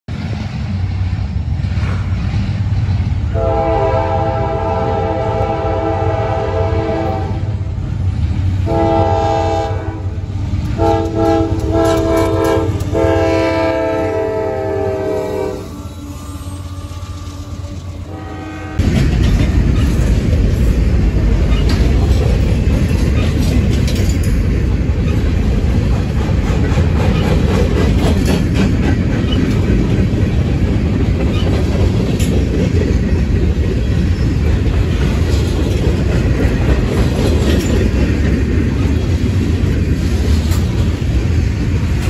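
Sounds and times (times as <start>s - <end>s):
locomotive air horn blasts: 3.3s - 7.6s, 8.6s - 10.2s, 10.8s - 18.9s.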